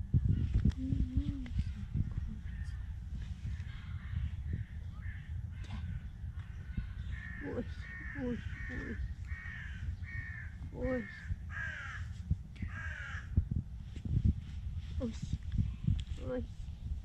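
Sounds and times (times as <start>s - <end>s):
steady low rumble: 0.0s - 17.0s
crow cawing: 7.0s - 12.1s, 12.7s - 13.3s.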